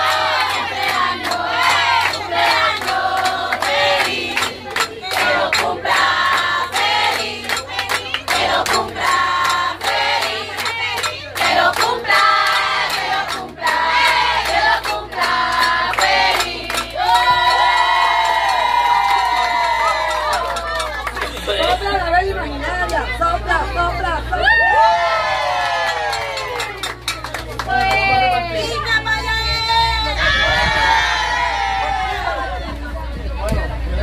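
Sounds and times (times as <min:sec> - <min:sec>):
group chanting and singing: 0:00.0 - 0:18.3
hand claps: 0:00.8 - 0:06.5, 0:07.1 - 0:17.3, 0:19.1 - 0:21.6, 0:26.0 - 0:28.4
long held shout: 0:24.4 - 0:26.6, 0:29.5 - 0:32.7.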